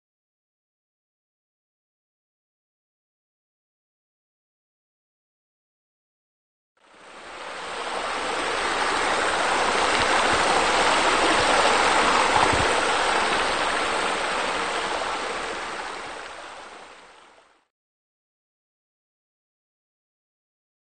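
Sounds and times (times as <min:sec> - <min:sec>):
water splashing into pool: 0:09.3 - 0:16.3.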